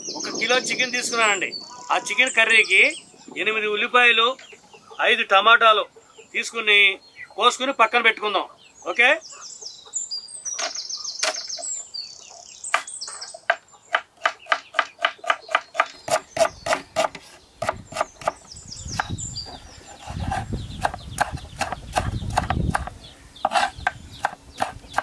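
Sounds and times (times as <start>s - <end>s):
knife chopping on wooden board: 13.5s - 18.4s, 20.0s - 25.0s.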